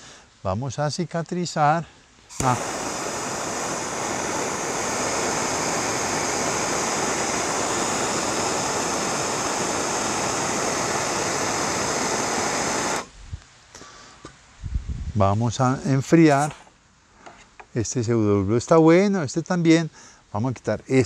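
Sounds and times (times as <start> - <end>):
gas torch hissing: 2.3 - 13.1, 16.3 - 16.6.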